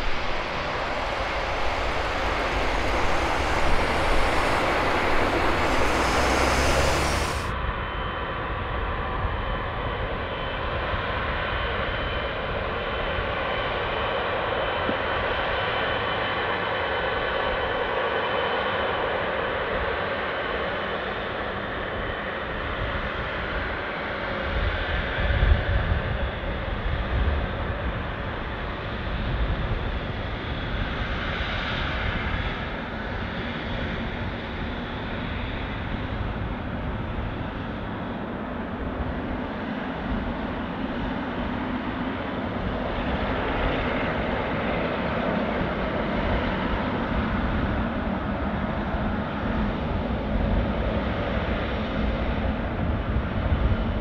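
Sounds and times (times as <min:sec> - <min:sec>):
jet engines roaring and whining: 0:00.0 - 0:54.0.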